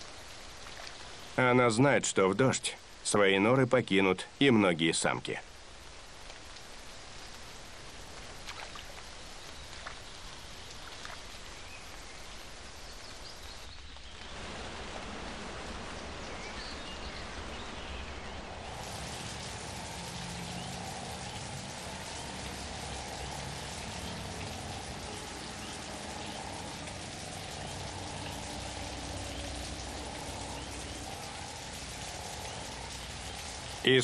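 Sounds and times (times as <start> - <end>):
rain falling: 0.0 - 34.0.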